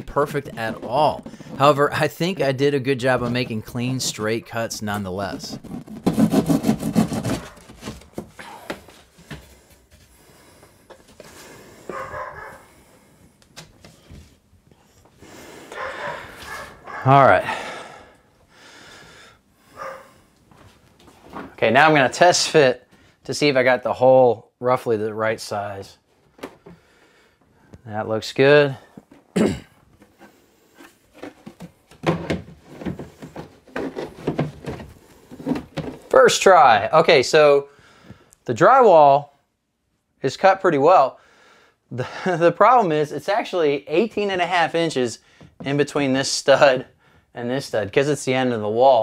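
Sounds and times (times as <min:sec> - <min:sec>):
drywall knocks and scrapes: 0:00.0 - 0:02.4, 0:03.0 - 0:08.4, 0:30.1 - 0:36.1.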